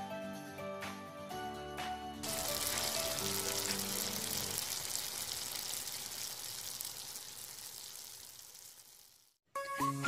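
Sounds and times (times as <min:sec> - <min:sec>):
food frying in a pan: 0:02.2 - 0:09.4.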